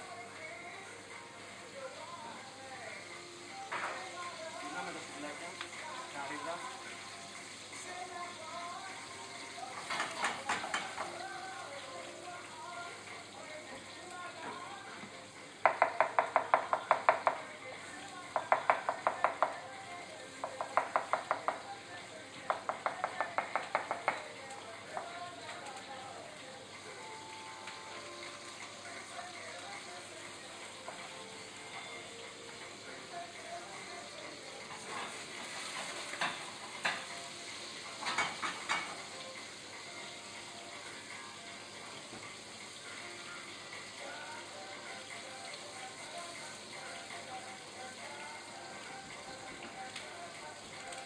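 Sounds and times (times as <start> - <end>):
food sizzling in a pan: 0.0 - 51.0
knife tapping on cutting board: 15.6 - 17.4, 18.4 - 19.6, 20.4 - 21.6, 22.5 - 24.2.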